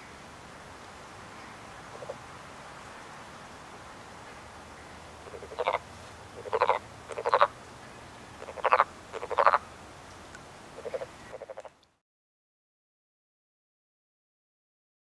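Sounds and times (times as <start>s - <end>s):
frogs croaking: 1.4s - 2.3s, 4.7s - 9.7s, 10.7s - 11.9s.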